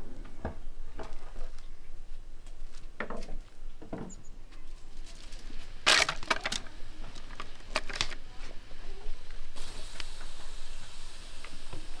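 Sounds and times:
faint hiss: 4.3s - 12.0s.

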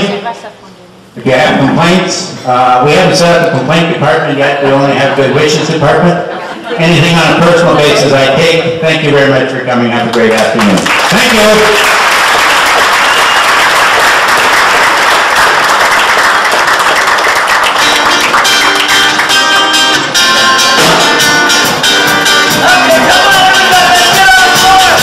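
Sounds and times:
audience applauding: 10.2s - 21.0s, 22.5s - 25.0s
band with accordion guitar drums: 17.7s - 25.0s.

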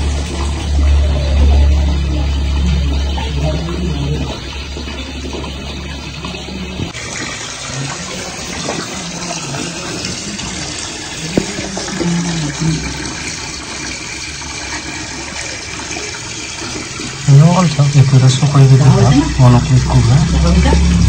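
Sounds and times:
water gushing and churning: 0.0s - 21.0s.

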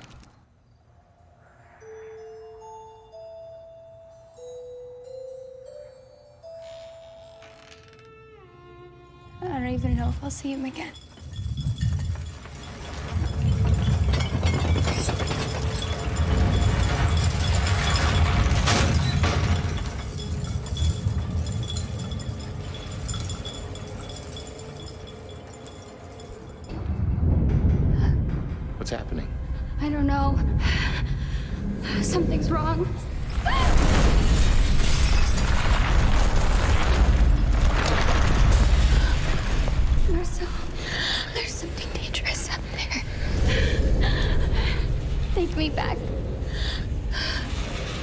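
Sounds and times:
booming rumble with rushing noise: 26.8s - 29.8s
deep rumbling boom: 26.8s - 34.5s.

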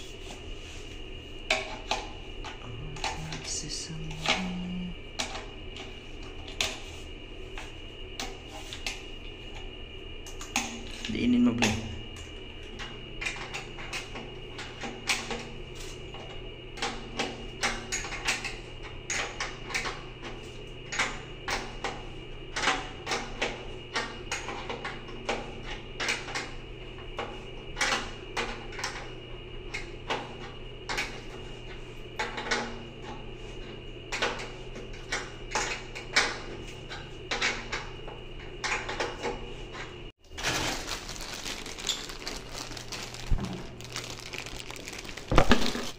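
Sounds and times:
faint steady high tone: 2.7s - 5.0s.

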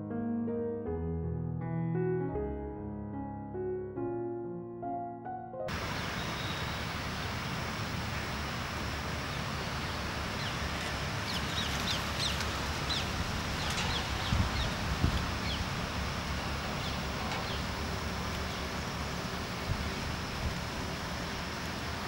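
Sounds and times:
birds chirping: 5.7s - 21.8s
low wind rumble on microphone: 5.7s - 22.0s.

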